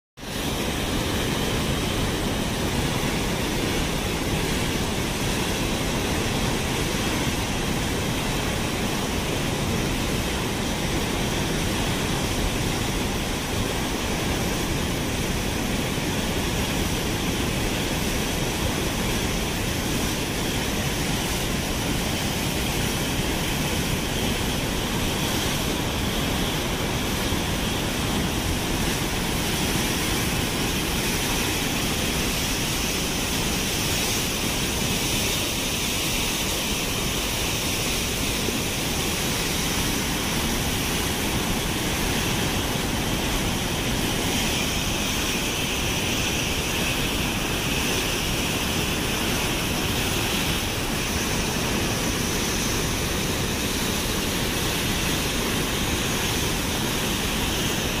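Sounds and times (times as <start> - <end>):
water rushing from dam outlets: 0.2 - 58.0.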